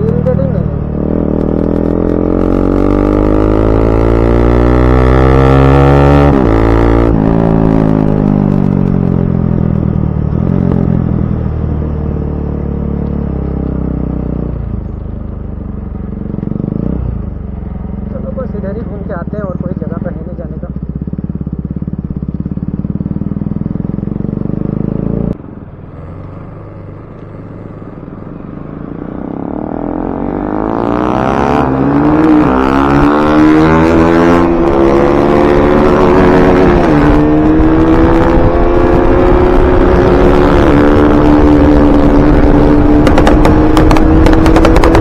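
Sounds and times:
motorcycle engine running: 0.0s - 30.7s, 32.9s - 45.0s
motorcycle accelerating and shifting gears: 0.0s - 45.0s.

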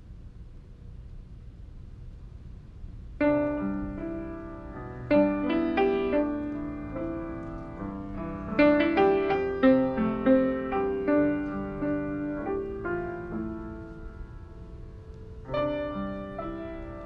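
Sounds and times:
grand piano playing: 3.2s - 17.0s.

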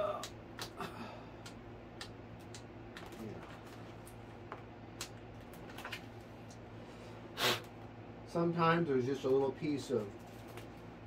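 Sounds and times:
steady low hum: 0.0s - 11.0s
small clicks and rustles: 2.4s - 6.6s, 9.2s - 10.9s.

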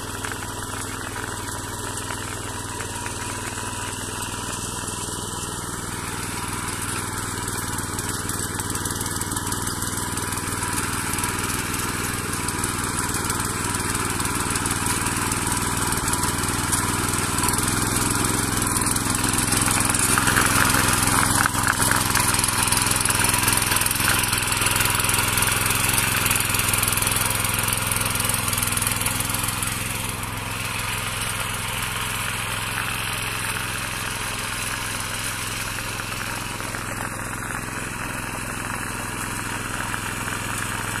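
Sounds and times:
power weeder engine tilling soil: 0.0s - 41.0s.

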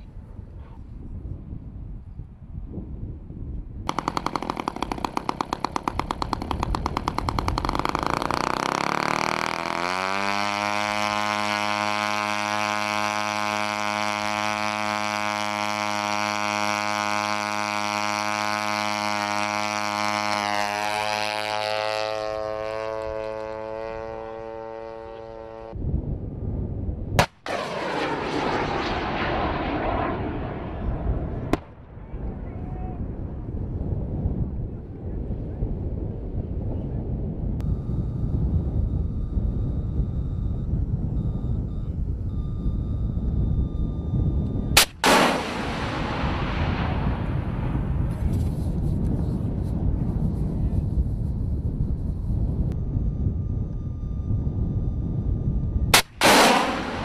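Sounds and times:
sharp crack: 3.9s - 10.8s, 27.2s - 30.7s, 44.8s - 47.6s, 56.0s - 57.0s
small piston engine buzzing: 3.9s - 25.8s.

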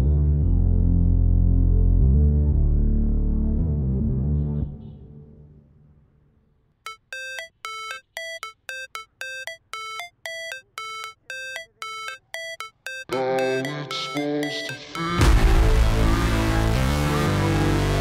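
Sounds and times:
background music: 6.9s - 18.0s.

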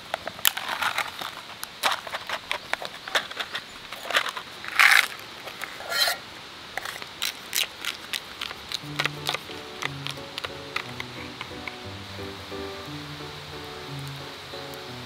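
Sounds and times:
crackly rustles: 0.0s - 11.9s
plastic cup crinkling: 0.1s - 6.2s, 6.8s - 12.1s
plastic clicks: 6.8s - 11.8s.

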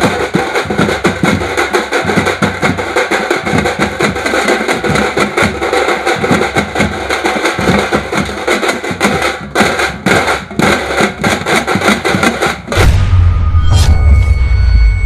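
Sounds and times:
stick-beaten drums playing fast: 0.0s - 14.4s
deep low rumble: 12.8s - 15.0s.

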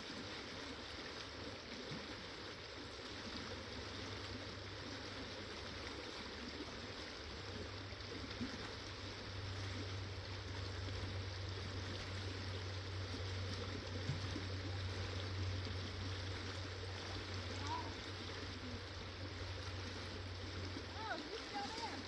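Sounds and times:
river rushing over rocks: 16.6s - 22.0s.

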